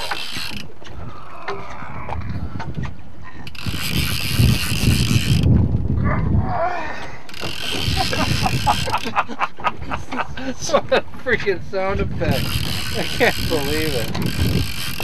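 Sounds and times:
fishing reel drag buzzing: 0:00.0 - 0:01.4, 0:03.4 - 0:05.5, 0:07.3 - 0:09.2, 0:12.3 - 0:15.0.

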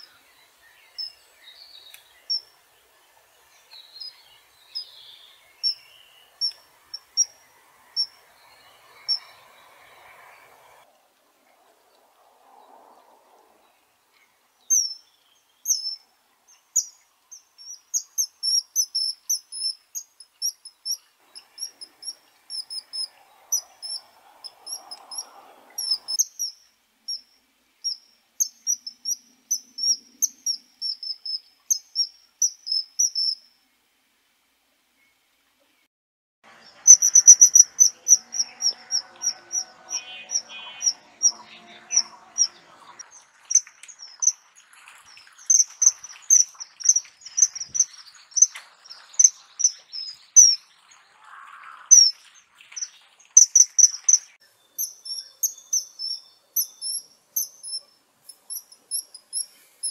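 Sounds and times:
kingfisher calling: 0:05.6 - 0:10.8, 0:21.4 - 0:26.5, 0:36.6 - 0:44.5.

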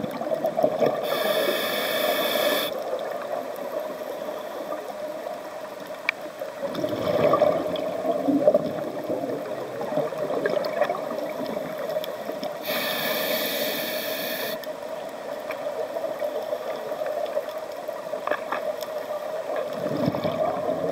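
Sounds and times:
underwater hum: 0:00.0 - 0:20.9
regulator inhalation hiss: 0:01.0 - 0:02.8, 0:12.6 - 0:14.7
exhaled bubbles underwater: 0:06.6 - 0:11.9, 0:19.6 - 0:20.9.

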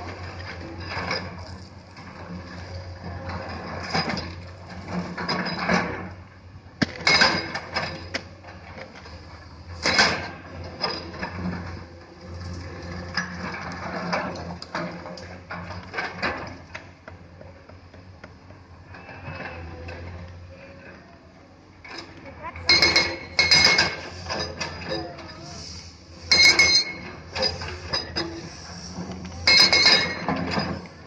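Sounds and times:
diesel engines running: 0:00.0 - 0:31.0
excavator bucket clanking on rock: 0:06.8 - 0:18.8, 0:22.0 - 0:25.2, 0:29.1 - 0:31.0.

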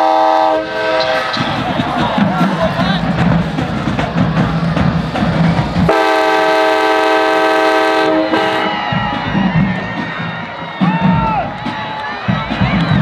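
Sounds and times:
train horn chord: 0:00.0 - 0:01.4, 0:05.9 - 0:08.8
stadium crowd din: 0:00.0 - 0:13.0.

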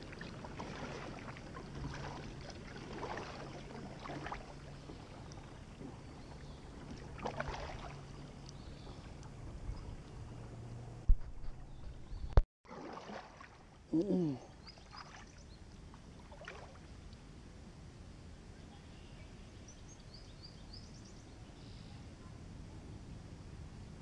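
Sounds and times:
paddle strokes swishing in water: 0:00.0 - 0:13.8, 0:14.7 - 0:17.1.

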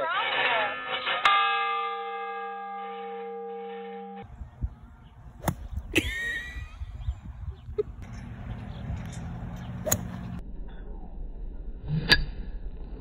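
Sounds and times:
large bell ringing: 0:00.8 - 0:04.3
golf club striking turf: 0:05.3 - 0:06.0, 0:09.1 - 0:10.4.

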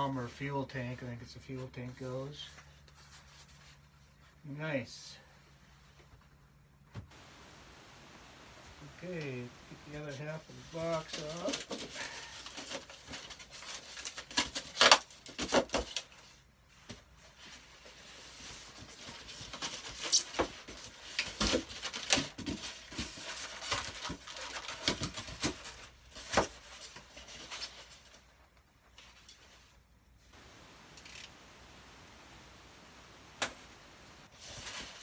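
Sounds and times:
cardboard scraping and rustling: 0:34.2 - 0:35.0.

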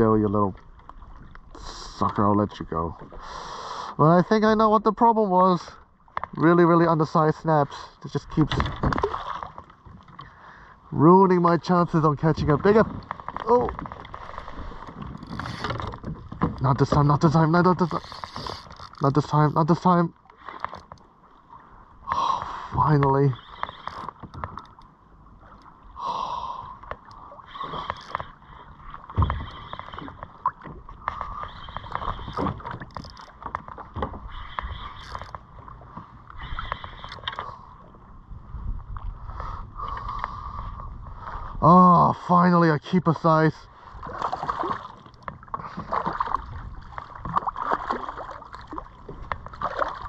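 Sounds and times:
water splashing against kayak hull: 0:08.2 - 0:41.6, 0:43.6 - 0:50.0
small clicks: 0:29.2 - 0:35.4.

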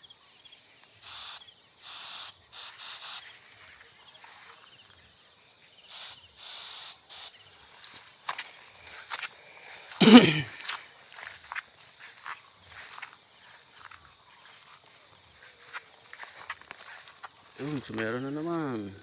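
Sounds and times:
high insect trill: 0:00.0 - 0:19.0
hand sprayer hissing squirts: 0:01.0 - 0:03.4, 0:05.9 - 0:13.1.

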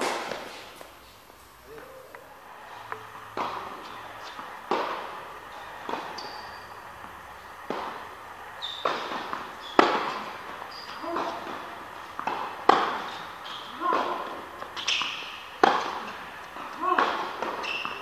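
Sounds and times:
tennis ball knocks echoing: 0:02.8 - 0:18.0
high shoe squeaks: 0:05.5 - 0:07.1, 0:08.5 - 0:11.7, 0:13.0 - 0:13.9, 0:14.7 - 0:15.5, 0:17.5 - 0:18.0.

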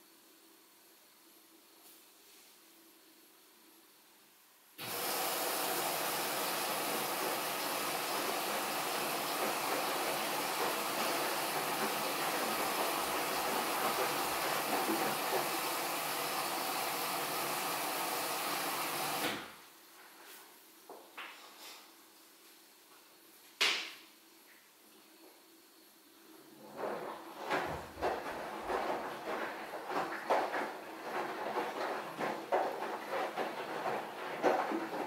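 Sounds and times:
washing machine taking in water: 0:04.8 - 0:19.3, 0:26.5 - 0:35.0.

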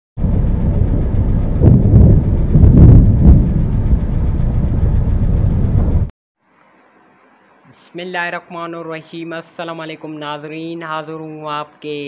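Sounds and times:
thunder rumbling: 0:00.2 - 0:06.1
sharp thunder cracks: 0:00.6 - 0:06.1.

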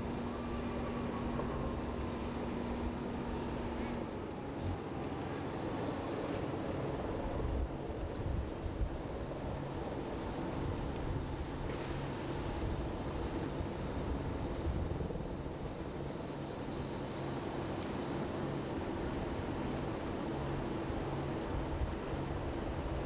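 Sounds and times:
faint high whine: 0:00.0 - 0:11.3.

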